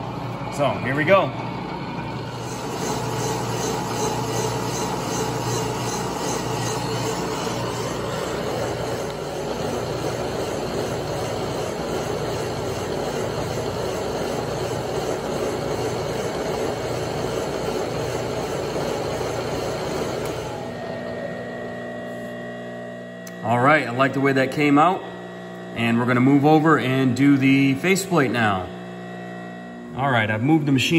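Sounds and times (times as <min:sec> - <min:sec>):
milling machine spindle running: 0:00.0 - 0:22.0
boring head cutting metal: 0:02.2 - 0:21.3.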